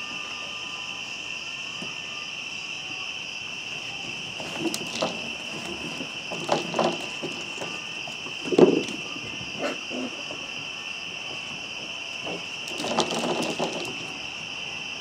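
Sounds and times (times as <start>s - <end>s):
crickets chirring: 0.0s - 15.0s
puppies growling and yapping: 9.6s - 10.5s.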